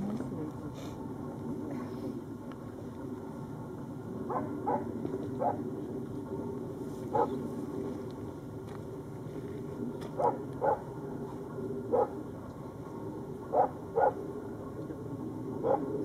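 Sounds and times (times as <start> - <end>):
low background hum: 0.0 - 16.0
dog barking: 4.3 - 5.6, 7.1 - 7.4, 10.2 - 10.9, 11.9 - 12.1, 13.5 - 14.2, 15.6 - 15.9.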